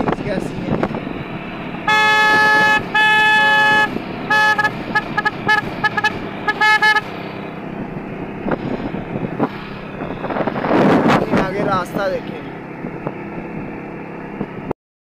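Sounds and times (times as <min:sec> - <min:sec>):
motorbike riding hum: 0:00.0 - 0:14.8
motorcycle horn blasts: 0:01.9 - 0:07.1.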